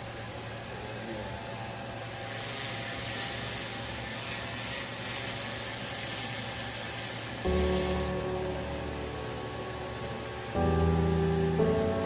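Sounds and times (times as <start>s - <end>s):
laser cleaner hissing rasp: 2.0s - 8.2s.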